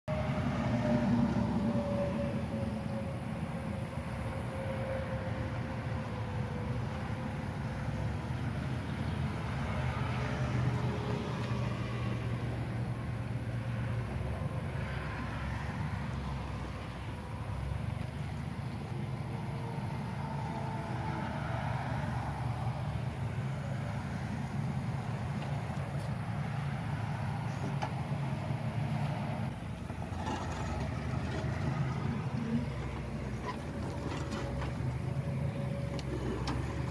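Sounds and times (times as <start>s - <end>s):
forklift engine droning: 0.1s - 36.9s
forklift engine running: 22.1s - 36.9s.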